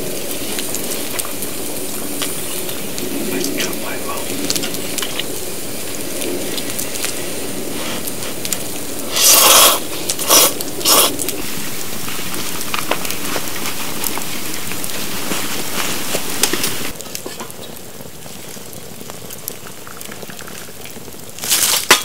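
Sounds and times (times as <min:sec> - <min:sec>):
wood fire crackling and popping: 0:00.0 - 0:22.0
person slurping noodles: 0:09.0 - 0:11.5.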